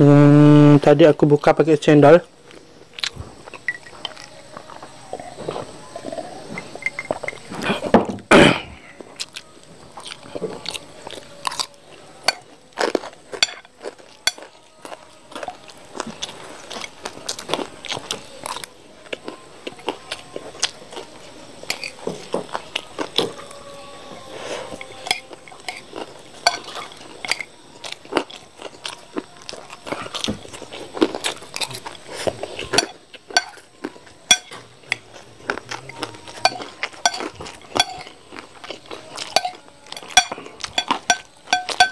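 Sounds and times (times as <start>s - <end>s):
chewing and crunching crackers: 0.8s - 41.9s
spoon scraping a ceramic plate: 36.4s - 38.2s.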